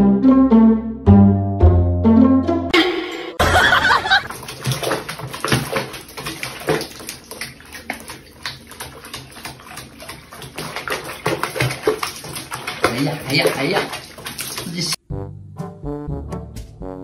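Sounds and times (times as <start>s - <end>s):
water splashing in a sink: 3.4s - 15.0s.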